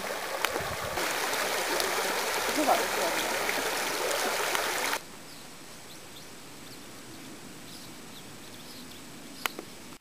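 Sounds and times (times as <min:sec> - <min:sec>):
rural background noise: 0:00.0 - 0:10.0
small birds chirping: 0:05.2 - 0:09.8.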